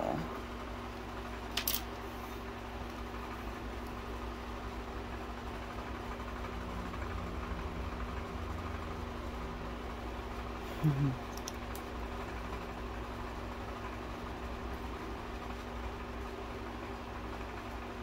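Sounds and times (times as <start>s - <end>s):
low voice hum: 0.0s - 0.4s, 10.6s - 11.6s
low machine hum: 0.0s - 18.0s.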